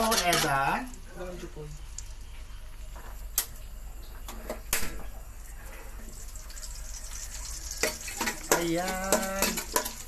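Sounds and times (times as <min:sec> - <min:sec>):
garlic sizzling in hot oil: 0:03.2 - 0:10.0.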